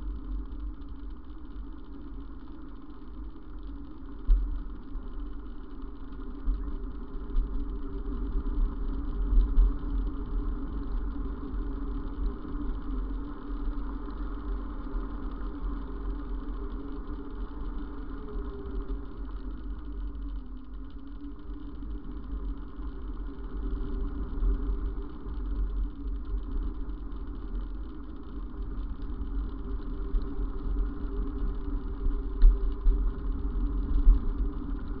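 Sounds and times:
wind on camera: 21.2 - 35.0.

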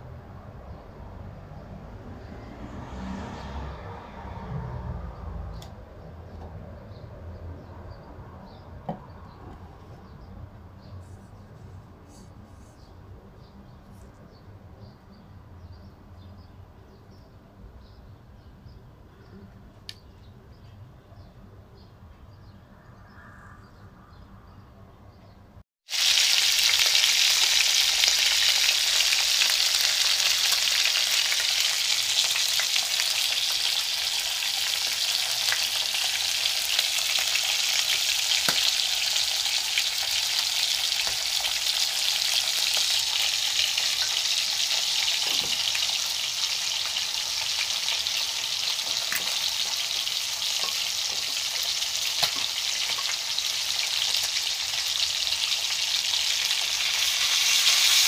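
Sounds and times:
oil sizzling in a wok: 25.8 - 58.0.

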